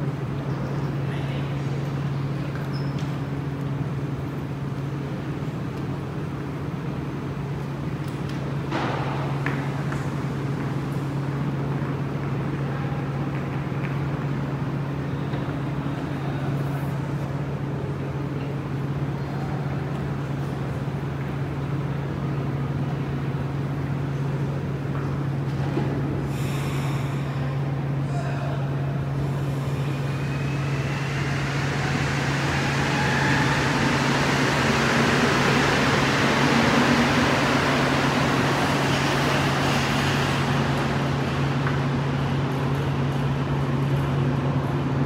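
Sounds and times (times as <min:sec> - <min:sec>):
metro train running: 0:00.0 - 0:45.0.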